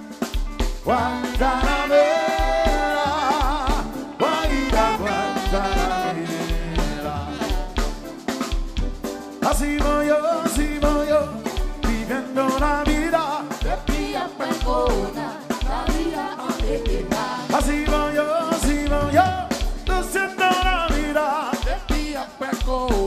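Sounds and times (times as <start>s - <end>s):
live band playing: 0.0s - 23.0s
person singing: 0.8s - 7.9s, 9.4s - 23.0s.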